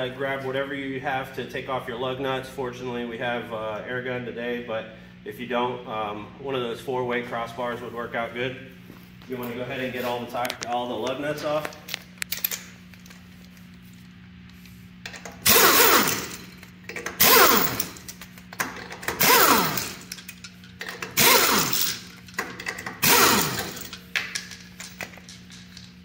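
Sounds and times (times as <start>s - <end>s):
pneumatic impact wrench bursts: 15.1s - 24.0s.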